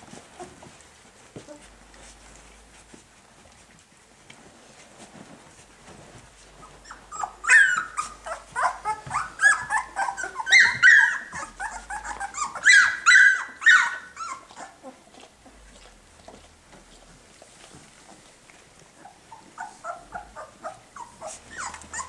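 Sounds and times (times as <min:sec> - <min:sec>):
puppies whining and squealing: 0:06.6 - 0:22.0.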